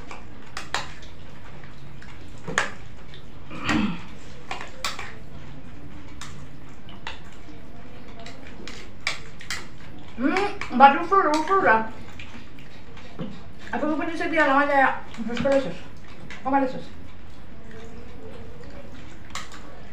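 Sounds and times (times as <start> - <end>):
spoons clicking on bowls: 6.1 - 12.3.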